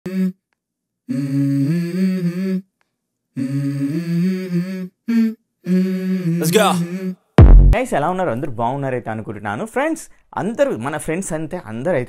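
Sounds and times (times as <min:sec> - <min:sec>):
low voice humming a slow tune: 0:01.1 - 0:02.6, 0:03.4 - 0:07.2.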